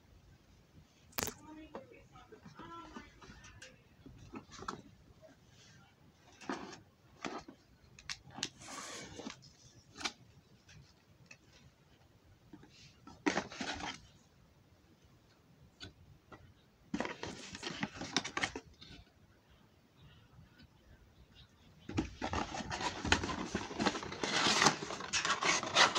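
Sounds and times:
cardboard rustling: 13.1 - 14.1, 16.9 - 18.9, 21.9 - 25.9
cardboard clicks and scrapes: 21.9 - 25.9.

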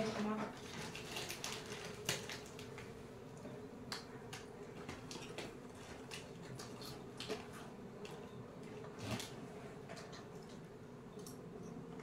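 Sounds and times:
faint steady hum: 0.0 - 12.0
plastic snack packet crinkling: 0.6 - 2.9.

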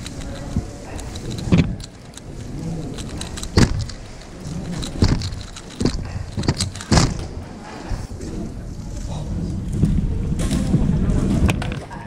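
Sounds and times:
plastic puzzle cube clicking: 0.0 - 7.3
sharp knocks: 3.5 - 4.0, 4.8 - 7.4.

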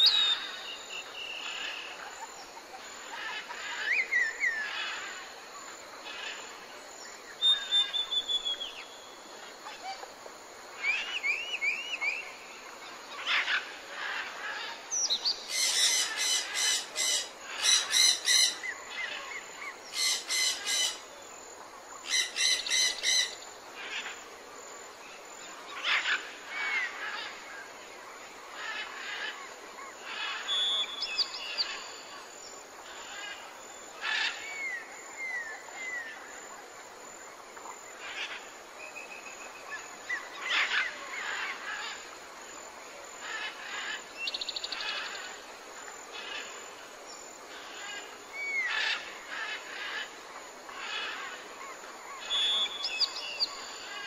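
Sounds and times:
background hiss: 0.0 - 54.0.

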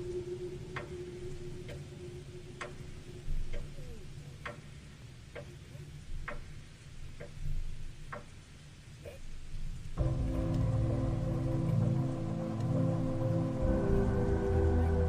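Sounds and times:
steady low rumble: 0.0 - 8.0, 9.6 - 15.0
sharp ticks: 0.7 - 1.9, 2.5 - 5.6, 6.2 - 7.5, 8.1 - 8.4.

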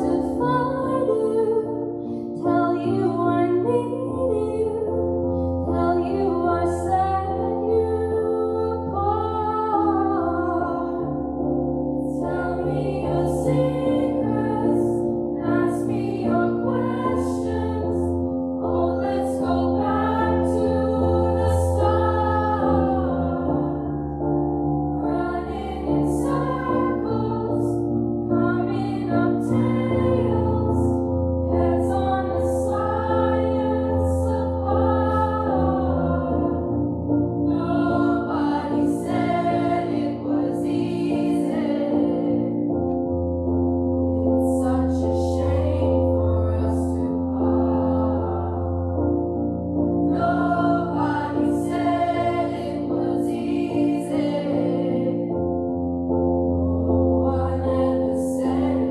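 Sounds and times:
choir singing: 0.0 - 5.0, 5.7 - 43.0, 44.1 - 55.6, 56.6 - 58.9.

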